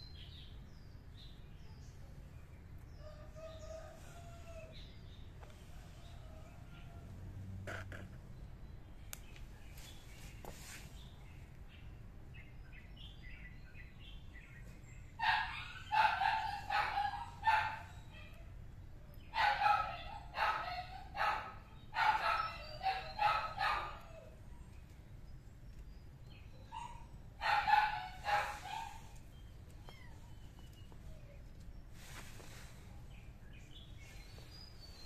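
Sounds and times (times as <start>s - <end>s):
kittens meowing: 28.9s - 30.8s.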